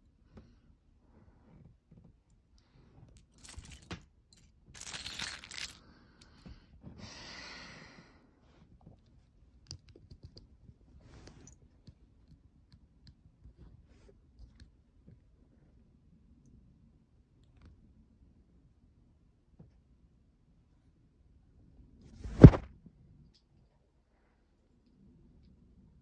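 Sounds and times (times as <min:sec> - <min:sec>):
plastic pieces clicking and clattering: 0:03.2 - 0:04.0, 0:04.8 - 0:05.8
fabric rustling: 0:22.2 - 0:22.7.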